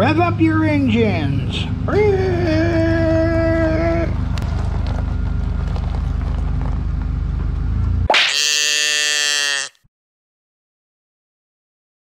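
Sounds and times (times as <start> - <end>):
buzzy horn-like tone: 8.2 - 9.9.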